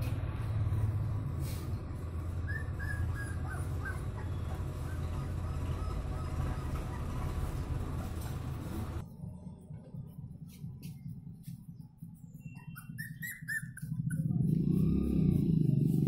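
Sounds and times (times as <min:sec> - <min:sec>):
steady low rumble: 0:00.0 - 0:12.6.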